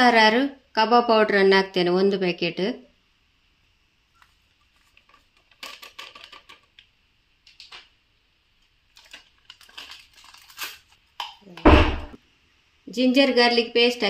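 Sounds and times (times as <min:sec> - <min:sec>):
foil packet crinkling: 0:08.6 - 0:11.2
thump: 0:11.7 - 0:12.2.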